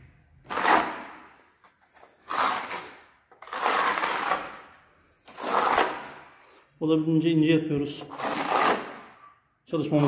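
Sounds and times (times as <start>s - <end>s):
trowel scraping mortar: 0.4s - 1.2s, 2.0s - 6.6s, 8.0s - 10.0s.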